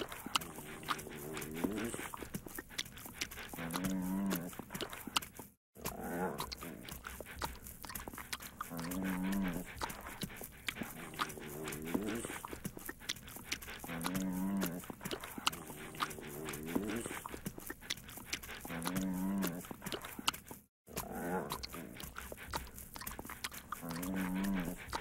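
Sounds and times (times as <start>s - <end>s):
dog making long low calls: 0.0s - 5.1s, 8.4s - 20.2s, 23.6s - 25.0s
dog tongue licking clicks: 0.0s - 5.5s, 6.4s - 25.0s.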